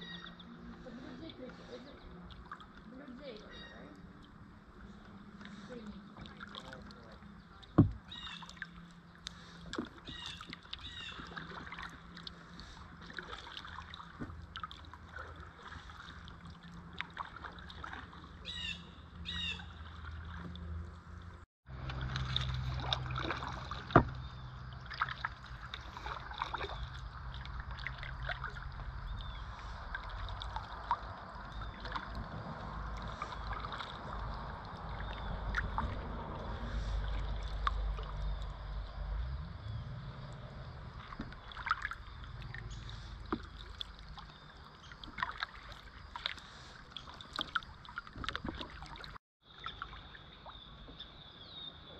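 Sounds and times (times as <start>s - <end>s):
birds calling: 0.0s - 6.2s, 7.0s - 13.0s, 18.4s - 20.4s, 31.3s - 32.2s
paddle dipping and dripping water: 0.0s - 51.9s
steady low rumble: 18.2s - 44.5s.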